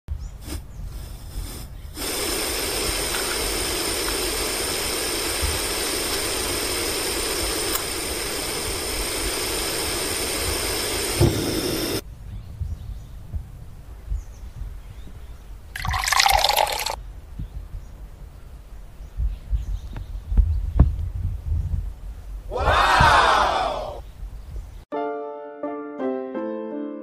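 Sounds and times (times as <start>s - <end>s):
gas stove burner hissing: 0.4s - 12.0s
short low thump: 11.2s - 11.6s, 22.9s - 23.4s.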